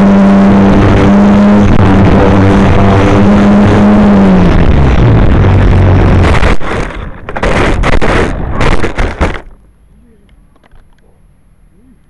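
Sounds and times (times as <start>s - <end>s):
plane crashing into ground: 0.0s - 9.7s
wind rush: 0.6s - 9.4s.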